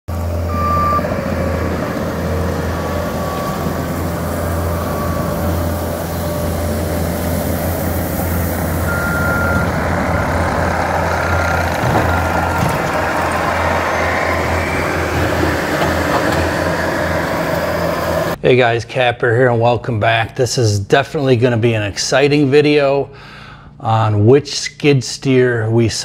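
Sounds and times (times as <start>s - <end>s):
diesel engine running: 0.1s - 18.4s
backup alarm beeps: 0.4s - 1.2s, 2.7s - 7.0s, 8.8s - 16.2s.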